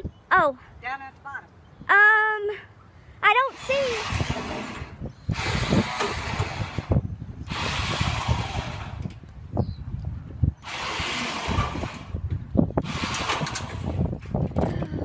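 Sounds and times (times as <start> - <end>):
tracks clanking on steel ramps: 3.6 - 9.2, 10.6 - 12.2, 12.8 - 14.4.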